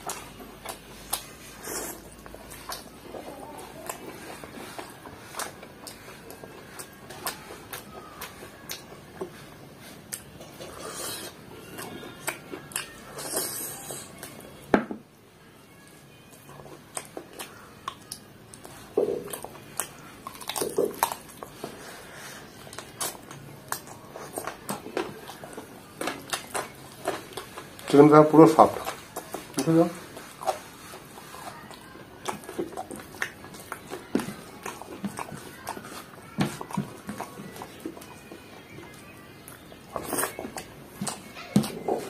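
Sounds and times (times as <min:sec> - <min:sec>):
chewing and wet mouth smacks: 0:00.0 - 0:14.4, 0:16.4 - 0:21.8, 0:22.6 - 0:38.7, 0:39.4 - 0:42.0.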